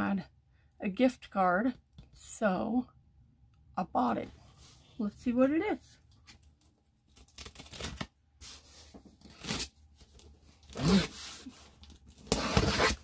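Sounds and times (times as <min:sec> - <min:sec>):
packing tape being slit and ripped: 0:07.1 - 0:08.6, 0:09.2 - 0:13.0.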